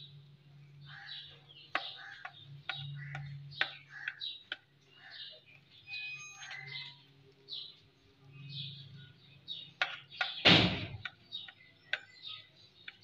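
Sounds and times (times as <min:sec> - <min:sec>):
small birds chirping: 0:00.0 - 0:13.0
loud thump: 0:10.4 - 0:11.0.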